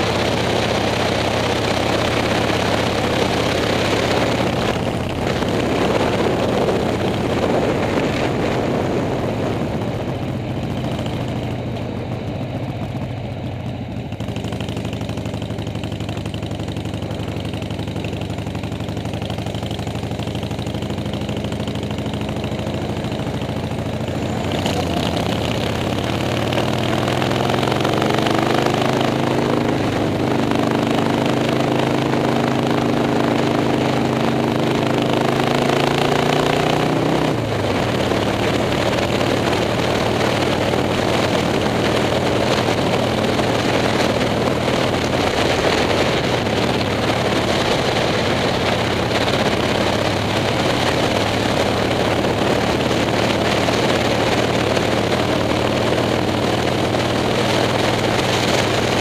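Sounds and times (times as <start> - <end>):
motorcycle engine running: 0.0 - 59.0
wind on microphone: 2.2 - 10.8, 24.0 - 59.0.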